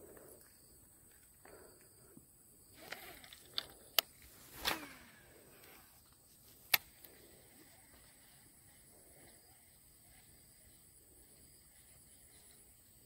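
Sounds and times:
fishing reel spool whir: 2.7s - 6.0s, 6.8s - 13.0s.

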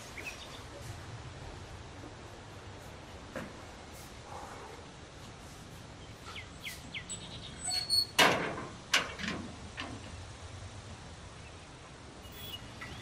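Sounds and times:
iron gate clanging shut: 7.6s - 10.1s.

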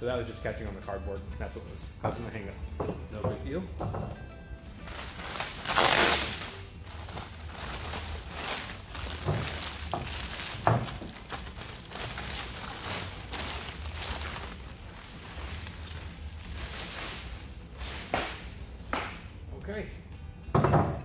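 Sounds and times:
plastic wrap crinkling: 4.8s - 18.6s.

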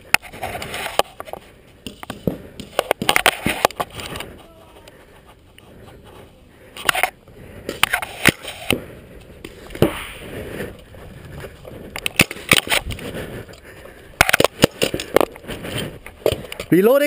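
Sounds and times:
paintball markers firing: 12.0s - 12.9s, 14.2s - 15.3s.

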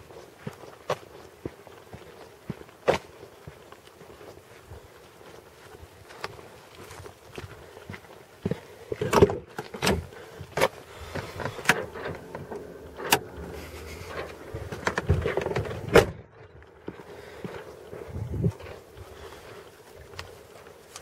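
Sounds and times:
car door opening and shutting: 11.2s - 13.8s, 14.7s - 16.2s.

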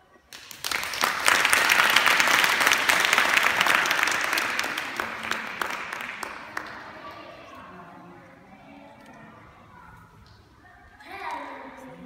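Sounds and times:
audience clapping: 0.3s - 7.4s.

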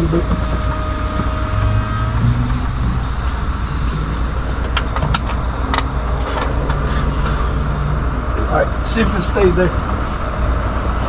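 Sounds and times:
vehicle engine idling: 0.0s - 11.0s
sharp metallic clicks: 4.5s - 6.8s.

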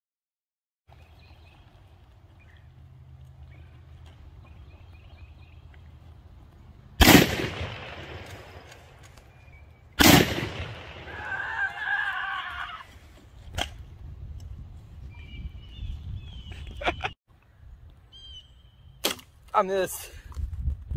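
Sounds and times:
rifle shots with echo: 7.0s - 8.8s, 10.0s - 11.2s.

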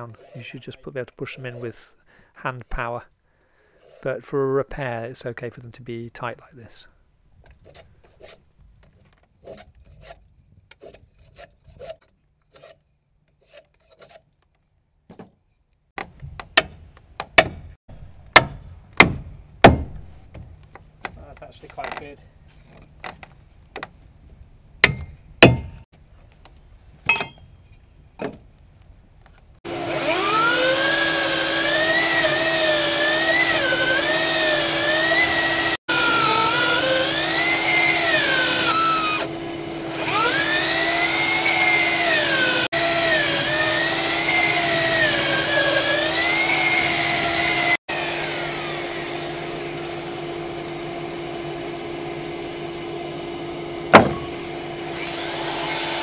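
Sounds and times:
tools knocking and tapping: 27.0s - 28.4s
electric drill boring into log: 29.7s - 56.0s.

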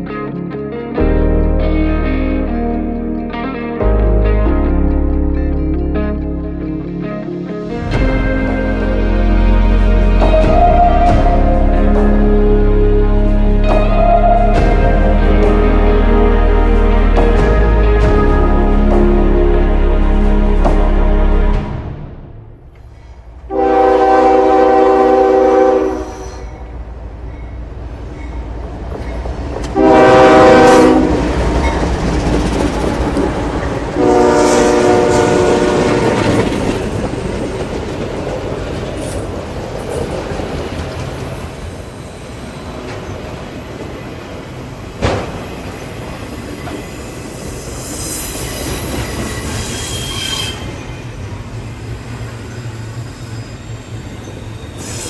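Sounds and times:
train rumbling over rails: 6.4s - 55.0s
locomotive air horn: 9.0s - 21.8s, 23.5s - 26.6s, 29.7s - 31.4s, 34.0s - 36.5s, 49.1s - 50.8s
sharp knock: 45.0s - 45.5s
high wheel squeal: 45.7s - 55.0s.

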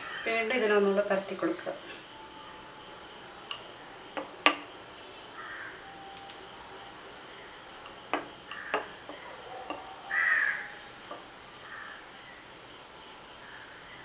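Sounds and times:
crows cawing: 5.4s - 5.8s, 8.5s - 10.9s, 11.6s - 12.1s.

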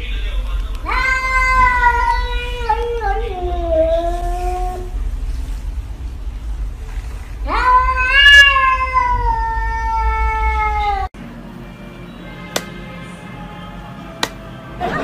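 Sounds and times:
cat meowing: 0.8s - 4.9s, 7.5s - 11.1s.

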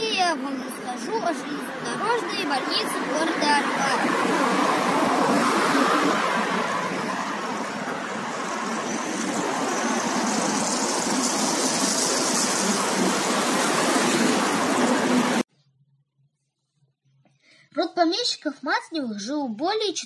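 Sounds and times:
passing road traffic: 0.0s - 15.5s.

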